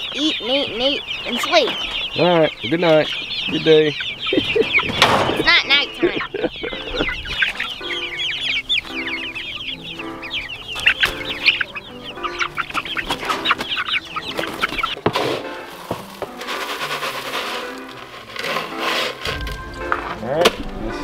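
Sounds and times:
ducklings peeping: 0.0 - 21.0
soft background music: 0.0 - 21.0.

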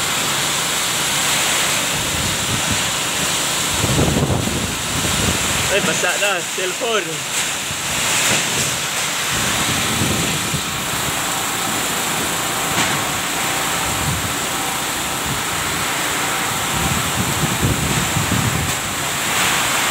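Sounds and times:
heavy rain pouring on pavement: 0.0 - 19.9
strong wind: 1.9 - 5.9, 7.7 - 19.9
wind buffeting microphone: 3.7 - 5.7, 8.6 - 11.2, 13.8 - 14.4, 16.5 - 19.0.

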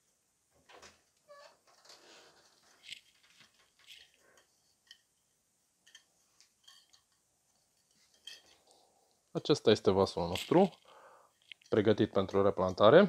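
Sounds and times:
scrapes and clicks of wire: 1.4 - 5.2, 5.8 - 8.8, 10.2 - 12.9.

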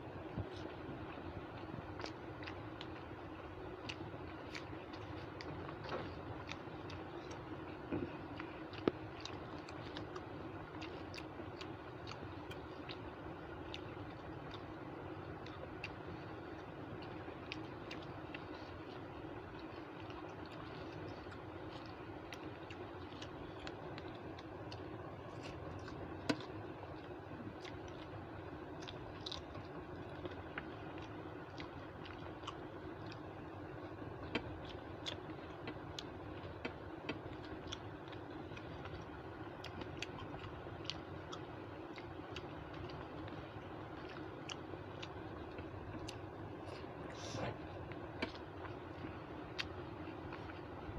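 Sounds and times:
background hum: 0.0 - 50.9
chewing: 0.1 - 50.9.

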